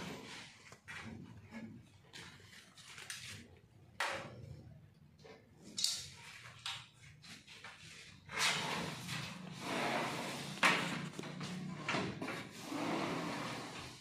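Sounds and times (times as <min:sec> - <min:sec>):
sliding window scraping along track: 0:00.0 - 0:00.6, 0:08.0 - 0:14.0.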